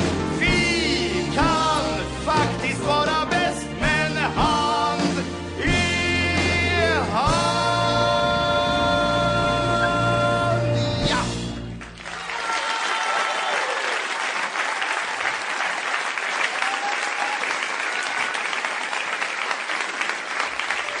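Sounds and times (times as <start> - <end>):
audience applauding: 11.7 - 21.0.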